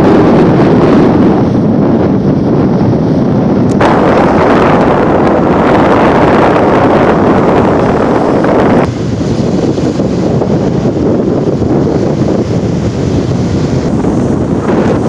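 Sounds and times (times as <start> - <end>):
wind blowing across microphone: 0.0 - 15.0
small waves washing on beach: 3.8 - 15.0.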